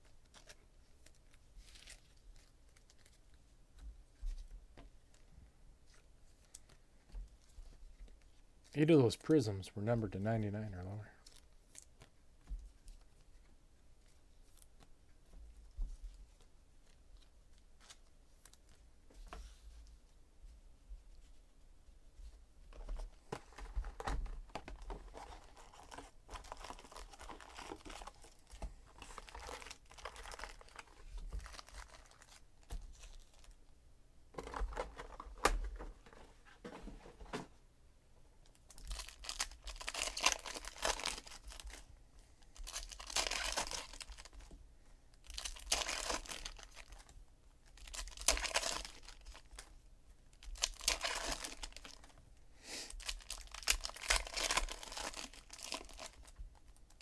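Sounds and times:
foil packs tearing and crinkling: 25.0s - 28.2s, 29.0s - 32.4s, 38.8s - 41.7s, 42.6s - 44.4s, 45.3s - 47.1s, 47.8s - 49.5s, 50.4s - 52.1s, 52.9s - 56.4s.

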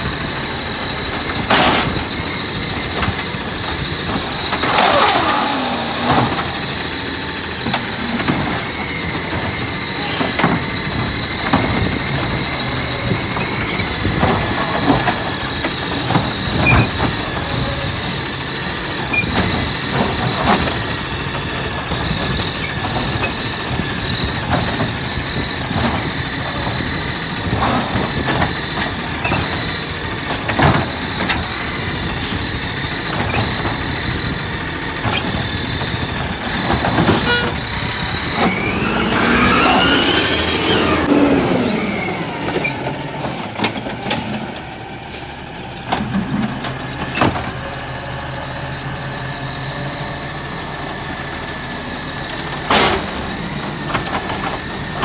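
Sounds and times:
garbage truck engine running: 0.0s - 55.0s
clanks and knocks: 1.1s - 6.9s, 7.6s - 18.1s, 19.0s - 39.3s.

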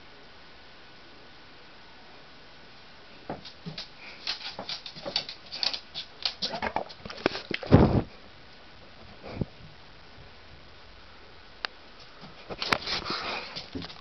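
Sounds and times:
hamsters scrabbling in bedding: 3.3s - 7.9s, 12.0s - 14.0s.

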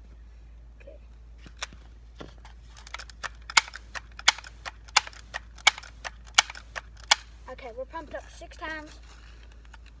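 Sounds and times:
air rifle pump clacking: 2.8s - 7.3s.

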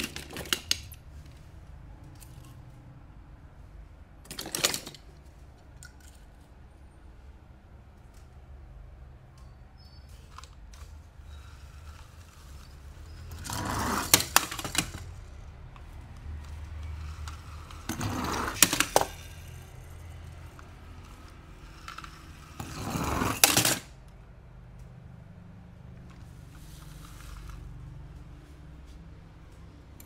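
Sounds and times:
packaging scraping and rustling: 10.2s - 15.2s, 16.6s - 19.9s.

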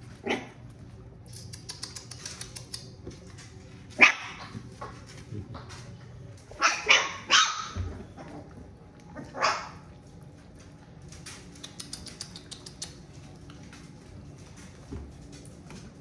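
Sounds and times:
dog barking: 4.0s - 4.4s, 6.6s - 7.8s, 9.3s - 9.8s.

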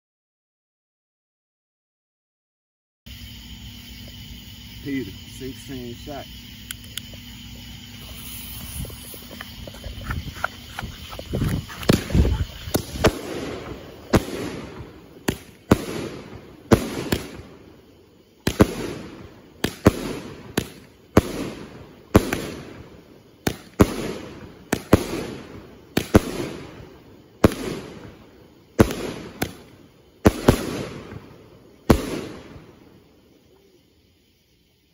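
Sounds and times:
firework cake bangs: 8.1s - 17.6s, 18.4s - 28.2s, 28.8s - 32.8s.

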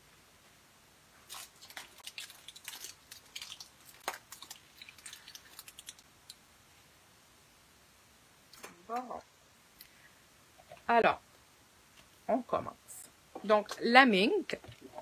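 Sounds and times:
wrapper crinkling: 1.2s - 6.0s.

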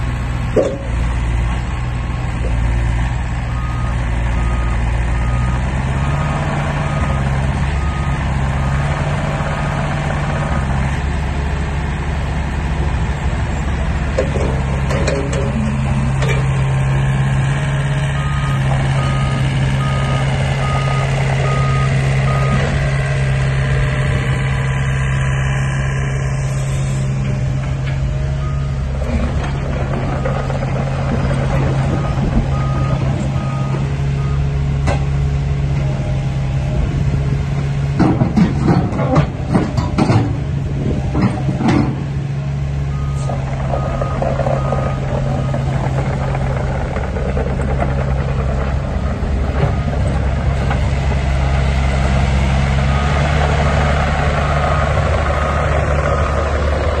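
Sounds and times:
excavator diesel engine running: 0.0s - 57.0s
metal clanks and knocks: 0.5s - 1.1s, 14.1s - 16.6s, 38.0s - 42.1s.

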